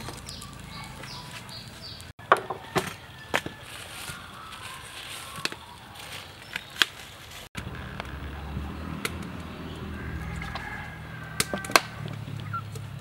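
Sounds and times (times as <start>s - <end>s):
fire popping and cracking: 0.0s - 2.4s.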